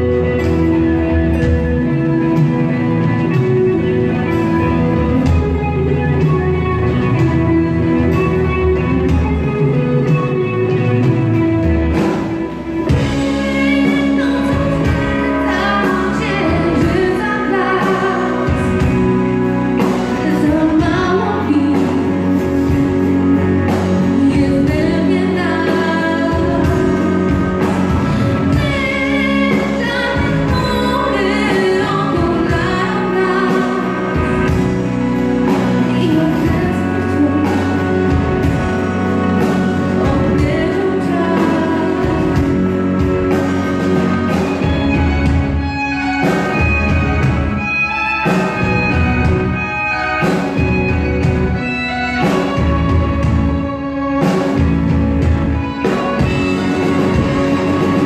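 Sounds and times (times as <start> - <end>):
bass guitar: 0.0 - 58.0
drums: 0.0 - 58.0
electric guitar: 0.0 - 58.0
keyboards: 0.0 - 58.0
woman singing: 12.2 - 43.6.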